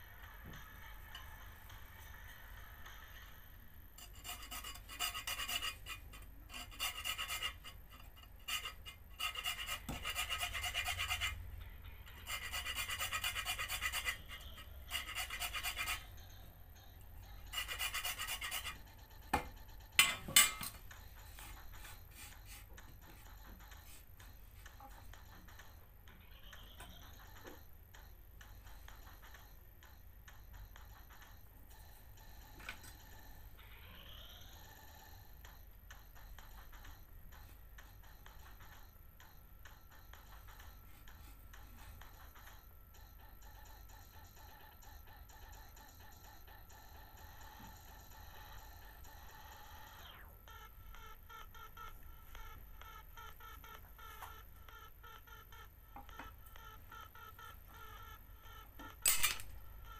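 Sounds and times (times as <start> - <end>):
hacksaw cutting plastic: 4.0 - 11.3.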